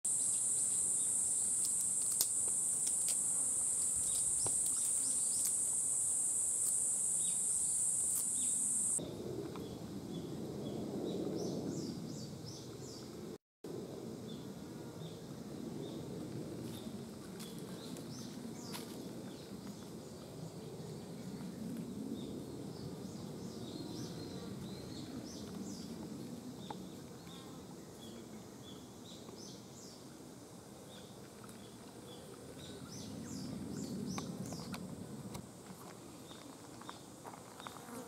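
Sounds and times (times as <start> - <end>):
high-pitched insect drone: 0.1 - 9.0.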